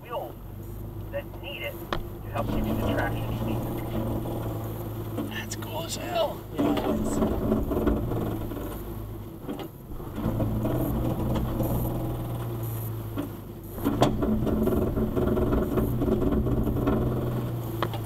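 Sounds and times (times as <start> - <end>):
engine idling from inside cabin: 0.0 - 18.0.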